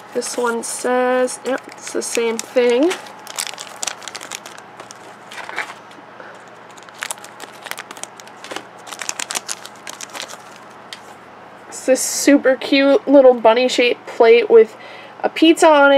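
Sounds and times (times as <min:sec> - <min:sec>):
plastic wrapper crinkling and tearing: 0:01.4 - 0:05.8, 0:06.4 - 0:10.8.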